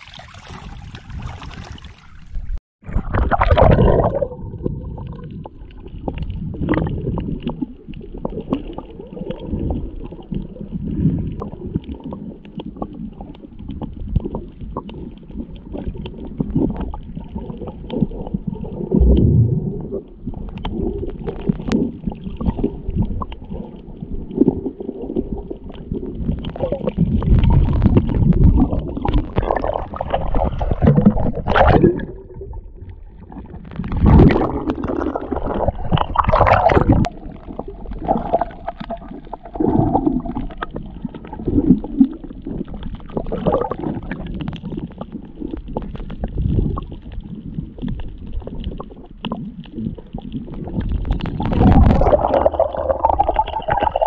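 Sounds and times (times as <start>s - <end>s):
muffled water sloshing: 0.0s - 54.0s.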